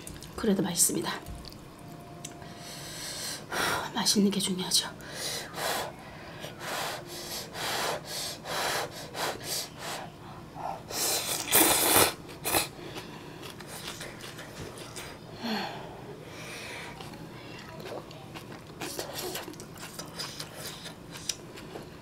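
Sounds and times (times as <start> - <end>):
slurping noodles: 10.9 - 12.7
chewing noises: 11.2 - 15.2, 16.8 - 22.0.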